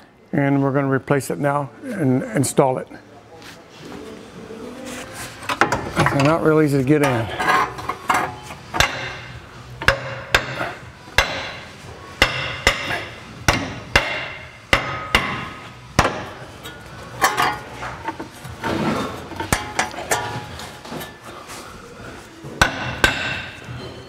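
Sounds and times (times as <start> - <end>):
hammer striking metal: 8.8 - 16.4, 22.6 - 23.7.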